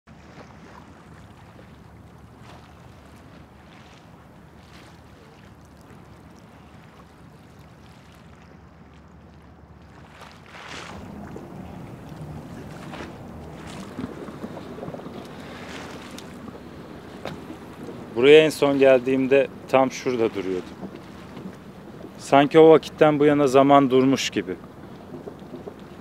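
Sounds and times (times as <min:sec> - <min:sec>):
low steady rumble: 0:00.1 - 0:26.0
sea water splashing against stone: 0:00.1 - 0:26.0.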